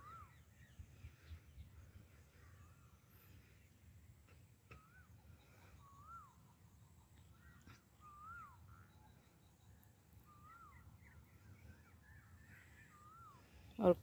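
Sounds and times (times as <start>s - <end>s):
bird whistled call: 0.0s - 0.6s, 4.8s - 6.6s, 7.4s - 9.1s, 10.2s - 13.6s.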